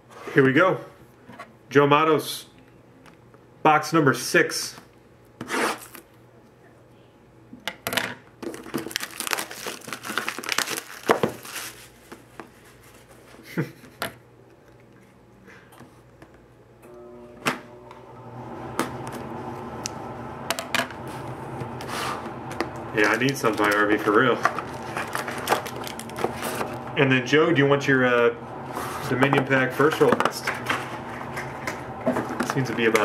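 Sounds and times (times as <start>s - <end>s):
plastic wrapping crinkling and tearing: 8.4s - 13.0s, 23.0s - 26.9s.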